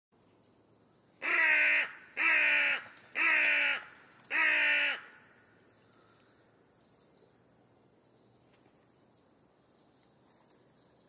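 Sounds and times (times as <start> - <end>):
crow cawing: 1.2 - 5.4.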